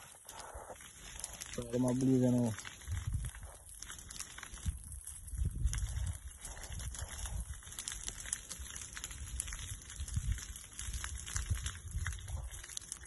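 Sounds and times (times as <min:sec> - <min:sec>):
burning brush crackling: 0:00.0 - 0:13.0
low thumps and rumble: 0:04.6 - 0:08.2.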